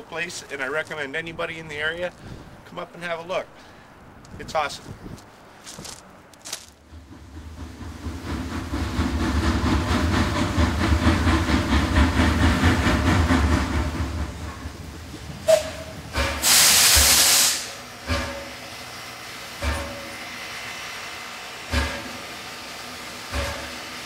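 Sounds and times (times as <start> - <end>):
steam locomotive chuffing: 6.9 - 24.0
loud hiss of steam: 15.5 - 18.4.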